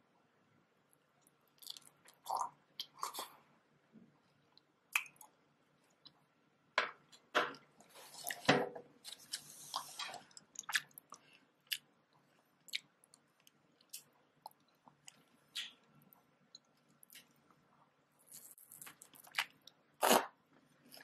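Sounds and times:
biting and chewing strawberries: 18.2s - 21.0s.

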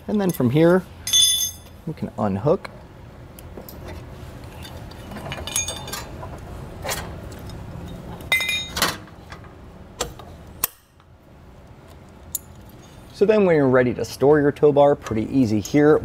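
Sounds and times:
metal chain hooks clinking: 0.2s - 1.8s, 5.2s - 6.1s.

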